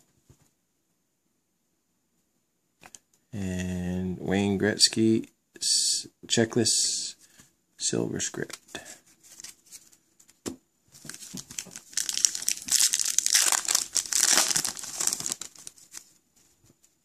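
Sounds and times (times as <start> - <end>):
foil wrapper tearing and crinkling: 11.1 - 16.1.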